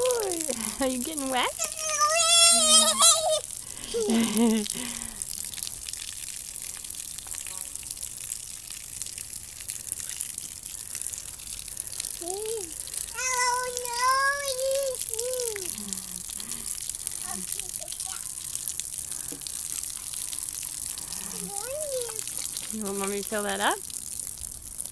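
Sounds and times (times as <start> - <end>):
toddler voice: 0.0 - 0.7, 1.5 - 4.5, 12.2 - 15.8, 17.2 - 18.4, 21.2 - 22.7
water spraying onto lawn: 0.0 - 24.9.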